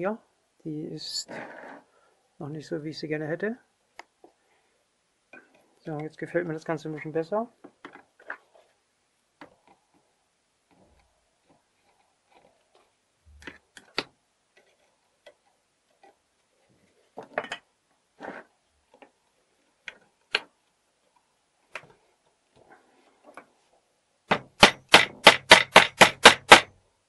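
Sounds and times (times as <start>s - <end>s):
hammer tapping metal punch: 24.3s - 26.7s.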